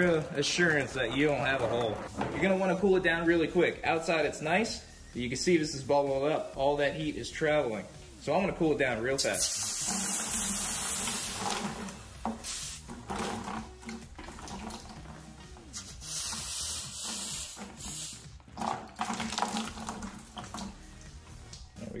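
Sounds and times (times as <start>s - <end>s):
hissing steam: 9.2s - 11.6s, 12.4s - 12.9s, 15.7s - 18.3s
water splashing on metal pipe: 9.3s - 16.2s, 17.2s - 20.9s.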